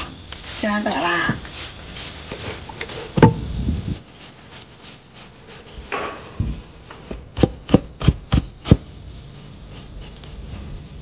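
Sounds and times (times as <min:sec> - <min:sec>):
vegetable grated on plastic grater: 0:00.5 - 0:05.9
cleaver chopping on wooden board: 0:07.1 - 0:08.8.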